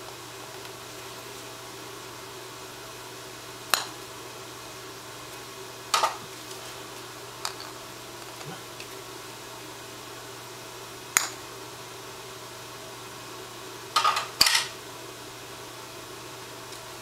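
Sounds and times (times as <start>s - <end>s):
fan humming: 0.0s - 17.0s.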